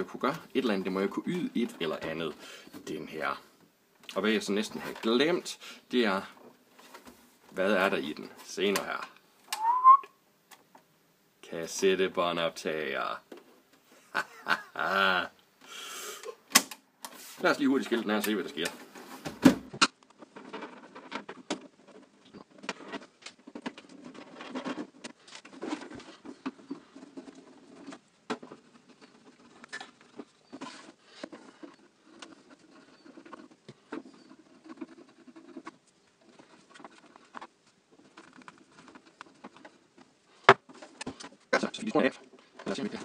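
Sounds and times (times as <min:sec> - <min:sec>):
plastic and metal clicks and scrapes: 0:19.8 - 0:43.0.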